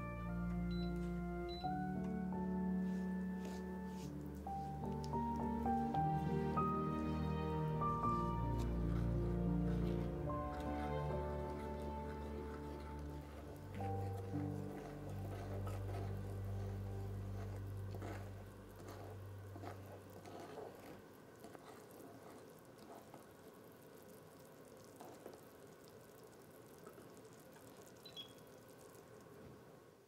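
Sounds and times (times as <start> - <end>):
held low musical note: 0.0 - 19.5
wooden spoon scraping a pot: 2.0 - 23.3
butter and sugar bubbling in a pot: 4.1 - 30.0.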